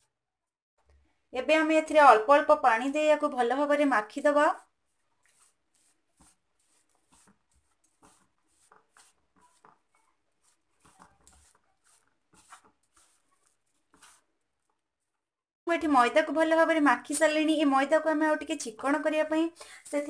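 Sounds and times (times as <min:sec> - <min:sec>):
fingers mixing dough in a bowl: 0:03.4 - 0:15.3.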